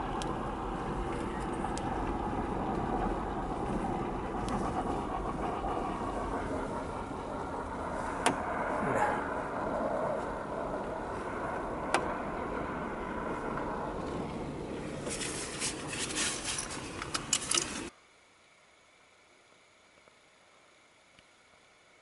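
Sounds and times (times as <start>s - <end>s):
car interior engine noise: 0.0s - 17.9s
clicks and rattles: 15.1s - 17.9s.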